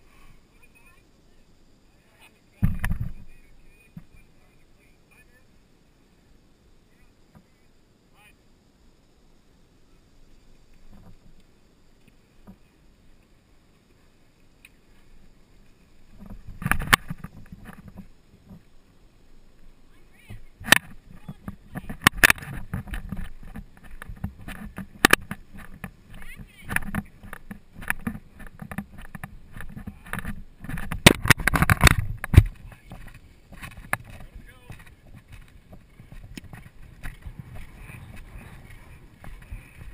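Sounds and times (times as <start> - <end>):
hooves thudding on turf: 20.1 - 39.9.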